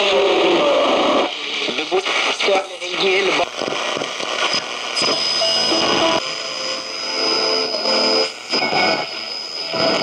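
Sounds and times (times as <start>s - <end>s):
voices on radio: 0.0s - 4.7s
radio static hiss: 0.0s - 10.0s
steady high whistle: 5.0s - 10.0s.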